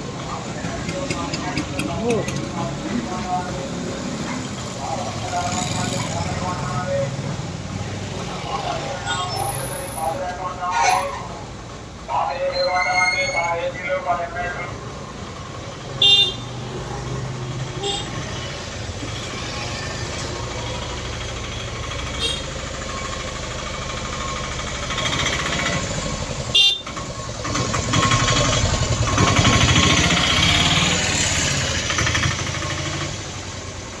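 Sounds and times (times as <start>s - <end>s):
street traffic: 0.0s - 34.0s
motor vehicle running close by: 0.6s - 10.1s, 16.5s - 34.0s
vehicle horn toots: 16.0s - 16.4s, 17.8s - 18.3s, 26.5s - 26.9s.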